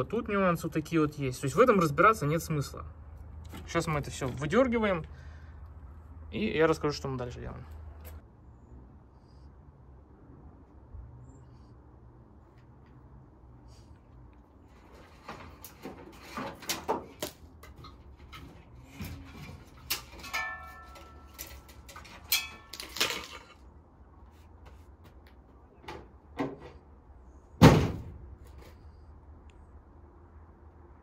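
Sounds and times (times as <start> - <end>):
wires clicking and rustling: 14.3 - 23.6
heavy thump: 27.6 - 28.2.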